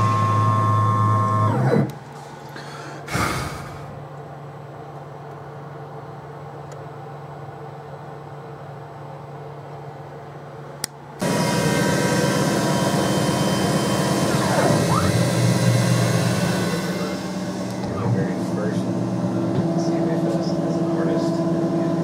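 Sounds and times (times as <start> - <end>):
milling machine spindle whine: 0.0 - 2.0, 11.2 - 22.0
low steady machine hum: 0.0 - 22.0.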